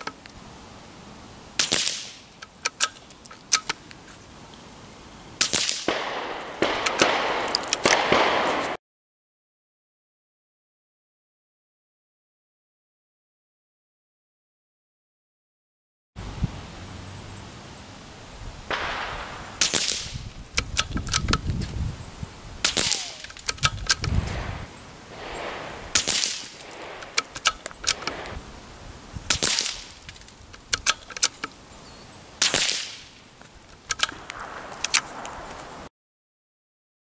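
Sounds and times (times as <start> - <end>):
suppressed rifle shots: 1.6 - 3.0, 5.4 - 8.8, 18.7 - 21.4, 22.6 - 28.4, 29.3 - 31.3, 32.4 - 33.2, 33.9 - 35.8
rifle bolt clicks: 1.6 - 3.8, 5.4 - 8.7, 18.7 - 21.4, 22.6 - 24.5, 25.2 - 28.4, 29.3 - 31.5, 33.7 - 35.4.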